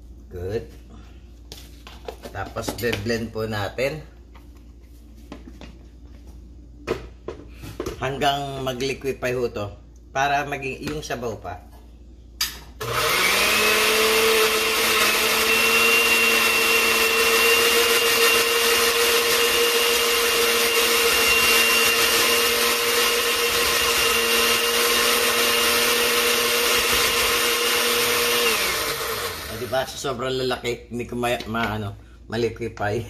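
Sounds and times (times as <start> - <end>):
blender motor whining: 12.8 - 29.8.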